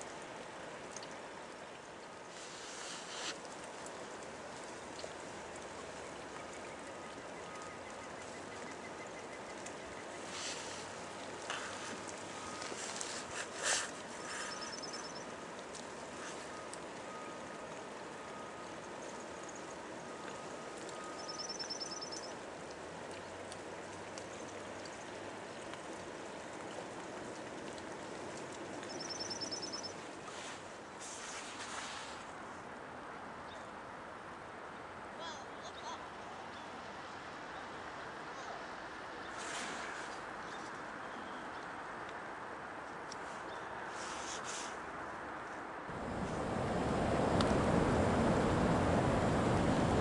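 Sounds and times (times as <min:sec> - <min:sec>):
river water rushing: 0:00.0 - 0:31.0, 0:44.9 - 0:50.0
bird trilling: 0:14.2 - 0:15.3, 0:21.2 - 0:22.3
river rushing: 0:45.9 - 0:50.0.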